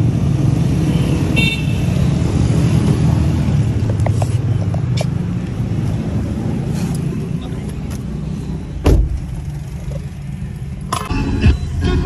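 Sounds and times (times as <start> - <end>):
street traffic: 0.0 - 12.0
vehicle horn toot: 1.4 - 1.9.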